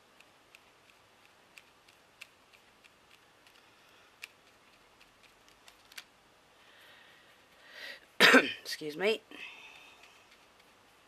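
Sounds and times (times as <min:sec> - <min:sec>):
paintbrush clicking on card: 0:00.2 - 0:03.6.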